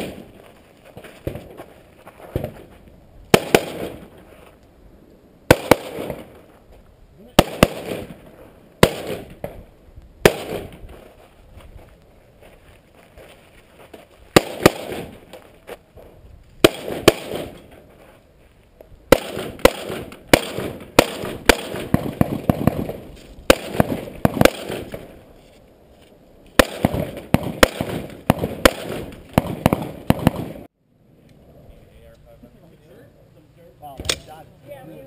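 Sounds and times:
rifle shots echoing: 0.0 - 0.4, 3.3 - 4.1, 5.5 - 6.4, 7.4 - 9.6, 10.2 - 10.8, 14.3 - 15.3, 16.6 - 17.7, 19.1 - 25.2, 26.6 - 30.7.

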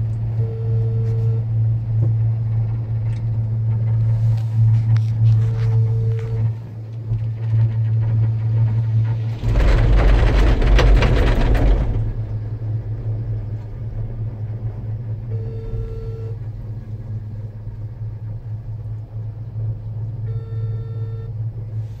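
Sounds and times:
cable car humming: 0.0 - 22.0
cable car rumbling and rattling: 0.0 - 22.0
short beeps: 0.4 - 1.5, 5.5 - 6.5, 15.3 - 16.4, 20.3 - 21.3.

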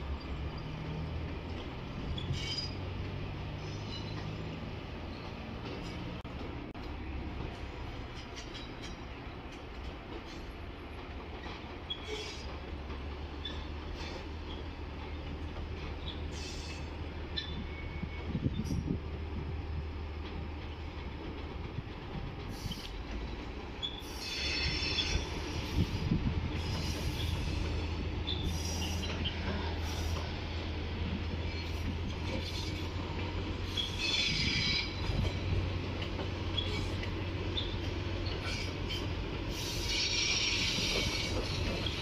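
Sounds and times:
wheels squealing: 0.0 - 6.0, 11.8 - 12.6, 23.8 - 30.3, 31.3 - 35.5, 36.4 - 42.0
train cars rumbling past: 0.0 - 42.0.

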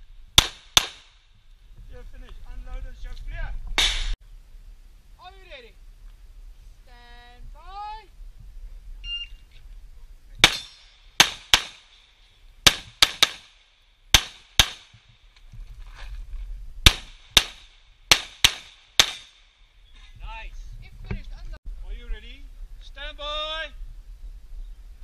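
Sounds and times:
pistol shots: 0.4 - 1.1, 10.4 - 12.0, 12.6 - 14.9, 16.8 - 19.4.

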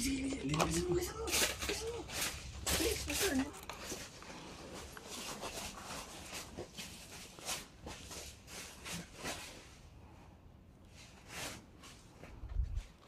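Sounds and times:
dry leaf litter crackling: 0.0 - 6.4.

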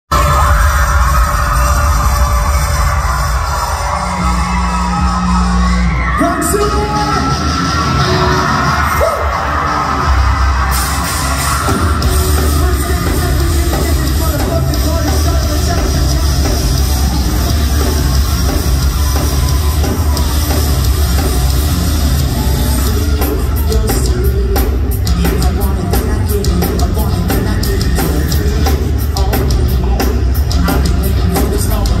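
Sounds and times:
live heavy rock band: 0.1 - 32.0
rapid driving drum hits: 6.6 - 32.0.

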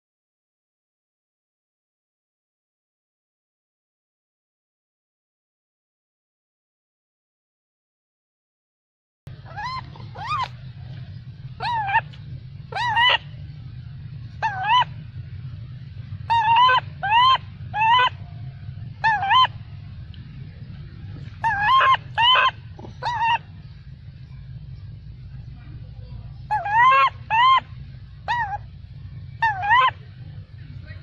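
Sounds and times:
steady low hum: 9.3 - 31.0
baby monkey shrill cries: 9.4 - 10.6, 11.6 - 13.3, 14.4 - 15.0, 16.3 - 18.2, 19.0 - 19.6, 21.4 - 23.5, 26.5 - 28.7, 29.4 - 30.0.

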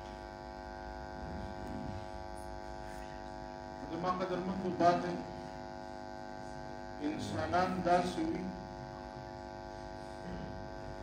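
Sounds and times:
electrical mains hum: 0.0 - 11.0
man speaking: 3.8 - 5.5, 7.0 - 8.6.

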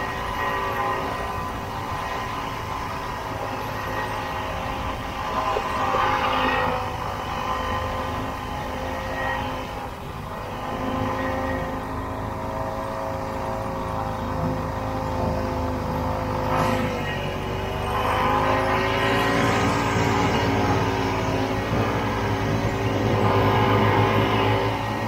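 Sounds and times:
snowmobile two-stroke engine: 0.0 - 25.0.

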